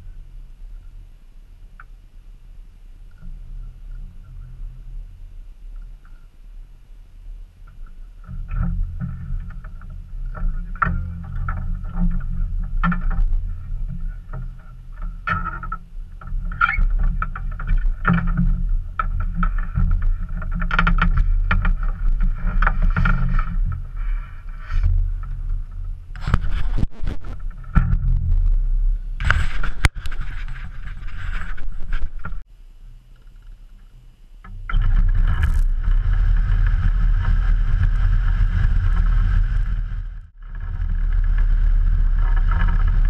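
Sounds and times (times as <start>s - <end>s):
wind buffeting microphone: 34.6s - 43.0s.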